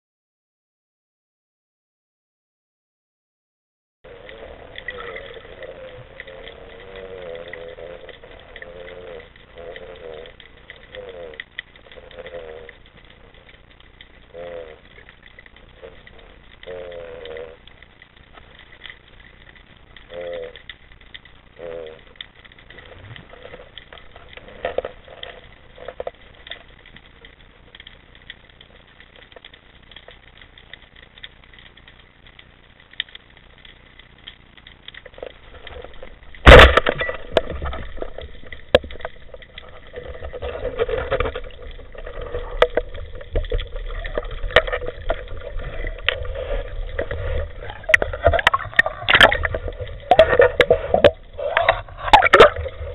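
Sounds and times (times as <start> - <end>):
speargun firing underwater: 36.4 - 39.3, 40.0 - 52.9.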